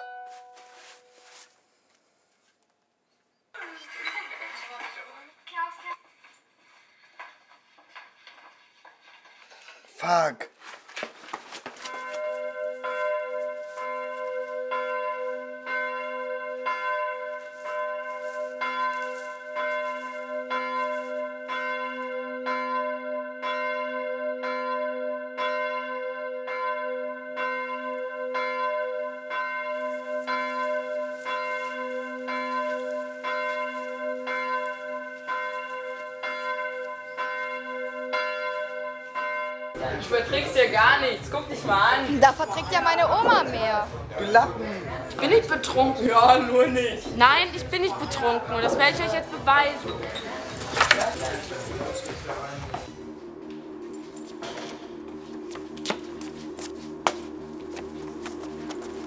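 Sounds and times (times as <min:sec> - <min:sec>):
church bell tolling: 0:00.0 - 0:01.4, 0:11.8 - 0:43.1.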